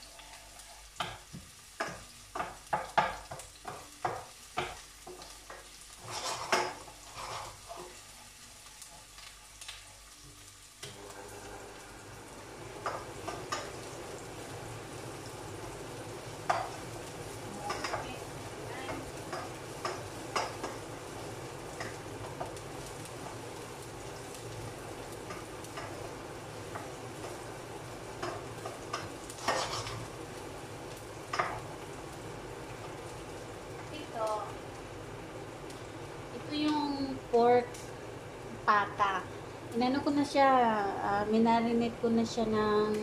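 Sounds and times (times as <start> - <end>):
onions frying in oil: 0.0 - 43.0
wooden spoon scraping a pan: 4.6 - 10.1, 28.2 - 30.2.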